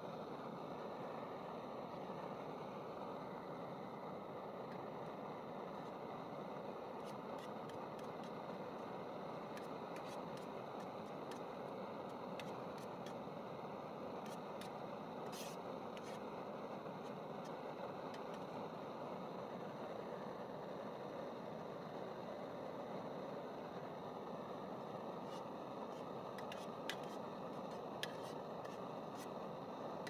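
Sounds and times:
steady background hiss: 0.0s - 30.0s.

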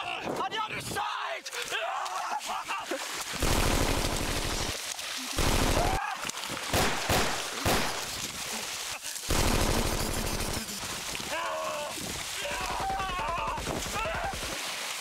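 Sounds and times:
loud shots or blasts: 3.4s - 4.7s, 5.4s - 6.0s, 6.7s - 8.2s, 9.3s - 10.6s
machine-gun fire: 3.4s - 4.8s, 5.4s - 6.0s, 6.7s - 8.1s, 9.3s - 10.7s.

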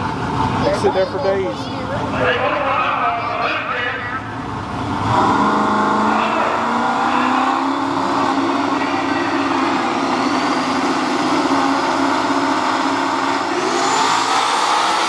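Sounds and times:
car engine revving: 3.6s - 15.0s.

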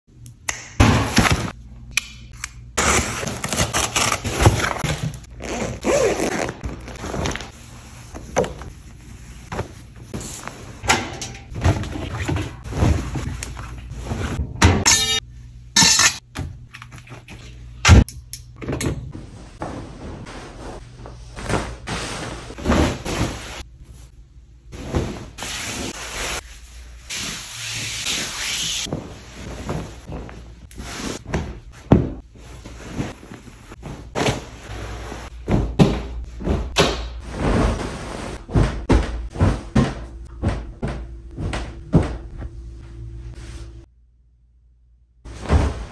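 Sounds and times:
bed sheets rustling: 5.4s - 10.8s, 19.2s - 35.6s.

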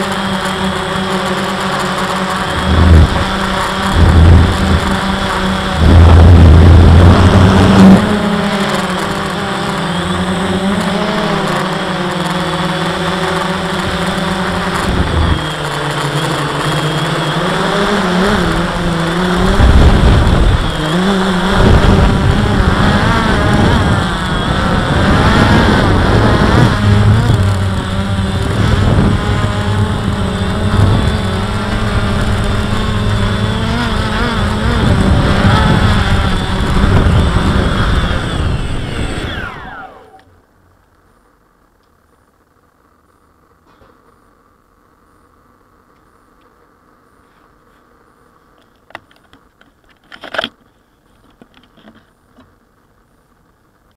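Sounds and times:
drone propellers whirring: 0.0s - 40.7s
wind buffeting microphone: 2.4s - 8.2s, 14.7s - 15.6s, 18.4s - 40.0s.

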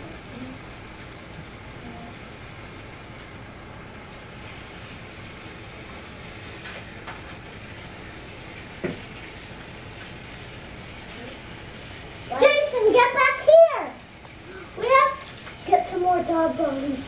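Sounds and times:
toy train motor whir: 4.1s - 17.0s.

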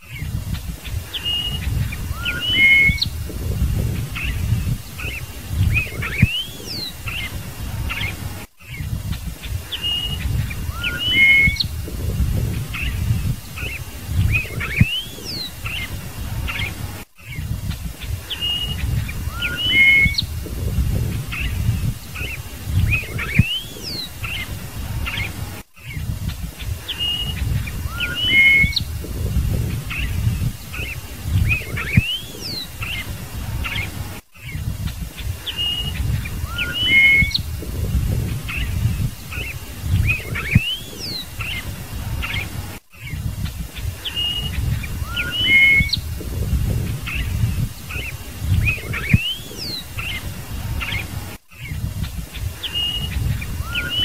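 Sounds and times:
bird singing whistled notes: 0.0s - 54.0s
uneven low rumble: 0.0s - 54.0s.

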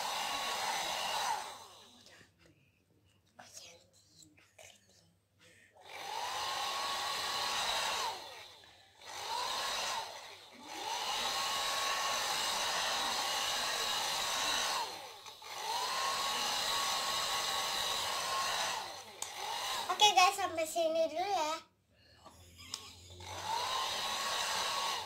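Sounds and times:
hair dryer blowing: 0.0s - 2.0s, 5.8s - 20.1s, 22.7s - 25.0s.

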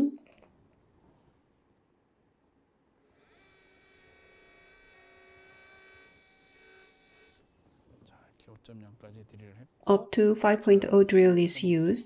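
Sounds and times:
surgical drill high whine: 3.0s - 7.9s.

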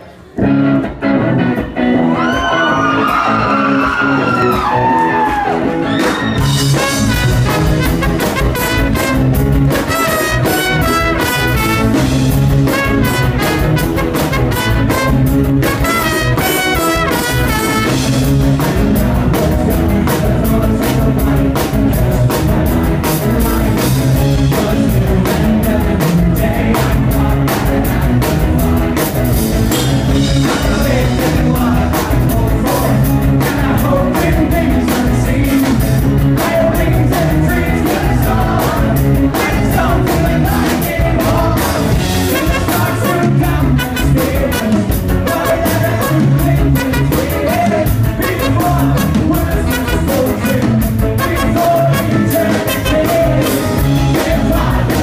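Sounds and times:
bass: 0.0s - 55.0s
electric guitars: 0.0s - 55.0s
drum kit: 0.4s - 55.0s
horn melody: 6.5s - 18.4s, 42.1s - 53.9s.

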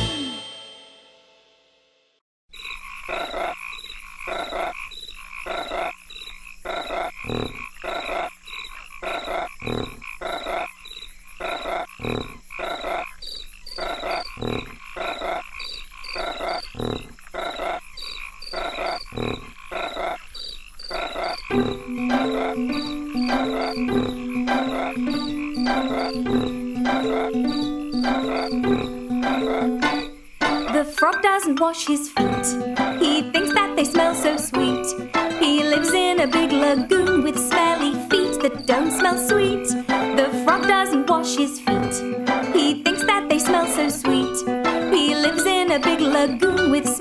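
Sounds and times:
frogs croaking: 2.5s - 47.0s
insects chirping: 2.5s - 47.0s.

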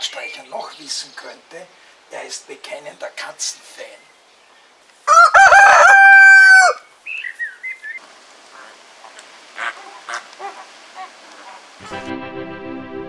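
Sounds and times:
rooster crowing: 5.1s - 6.9s.

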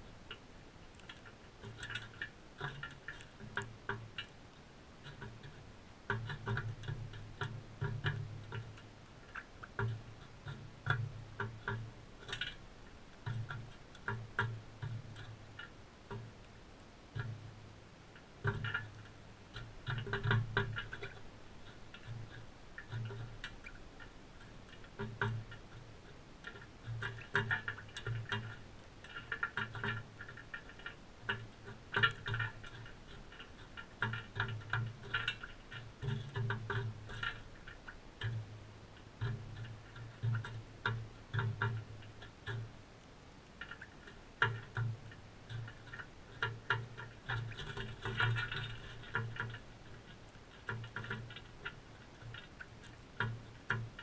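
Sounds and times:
birds tapping on tray: 18.2s - 38.5s, 43.6s - 54.0s.

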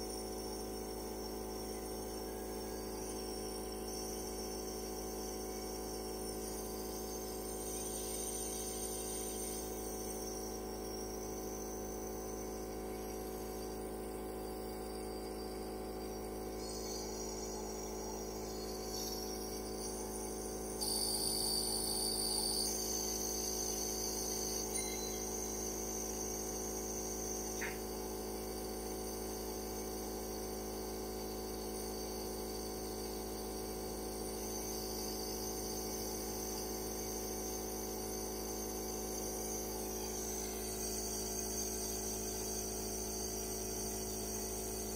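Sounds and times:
nebulizer compressor humming: 0.0s - 44.9s
shrill high-pitched chirring: 20.8s - 25.6s.

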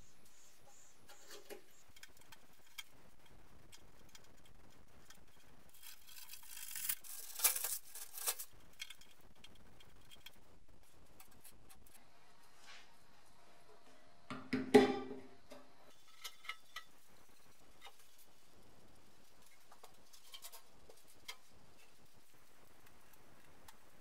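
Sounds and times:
tape crumpling: 5.7s - 8.6s
faint handling sounds: 15.9s - 24.0s.

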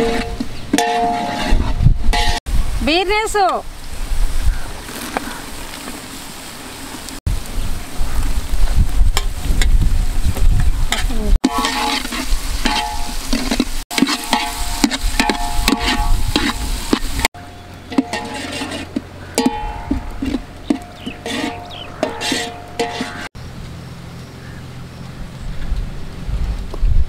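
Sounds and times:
metal ladle scraping and clanking: 0.0s - 2.4s, 10.9s - 23.3s.

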